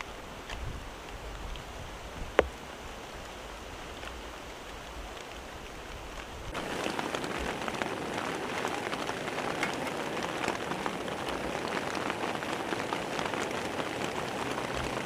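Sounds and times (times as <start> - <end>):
rain falling: 0.0 - 15.0
raindrops ticking: 4.0 - 15.0.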